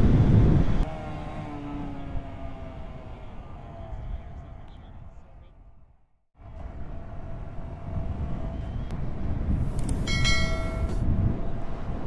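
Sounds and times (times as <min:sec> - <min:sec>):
wind and road noise: 0:00.0 - 0:12.0
bright ringing chime: 0:10.1 - 0:11.0.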